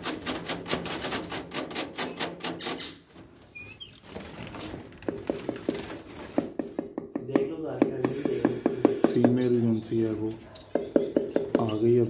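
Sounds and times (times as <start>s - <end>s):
rapid tapping on wooden box: 5.0s - 9.4s, 10.7s - 11.8s
high bird chirps: 8.8s - 12.0s.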